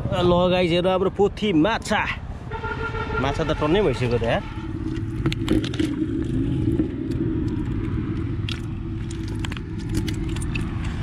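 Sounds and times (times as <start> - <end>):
low rumble: 4.0 - 11.0
fish wriggling in clay pot: 4.6 - 11.0.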